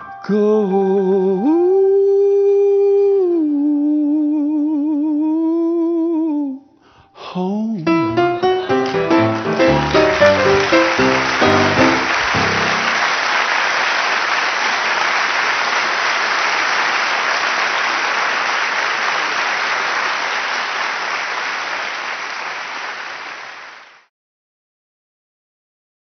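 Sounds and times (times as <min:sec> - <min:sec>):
piano chord: 0:07.8 - 0:13.0
audience applauding: 0:07.9 - 0:24.1.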